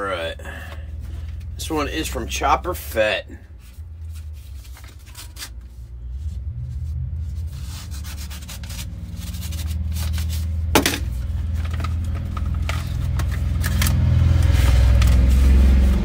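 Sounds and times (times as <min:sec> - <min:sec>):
low rumble: 0:03.4 - 0:16.0
paper rustling: 0:03.6 - 0:06.5, 0:07.2 - 0:16.0
utility knife slitting envelope: 0:07.5 - 0:16.0.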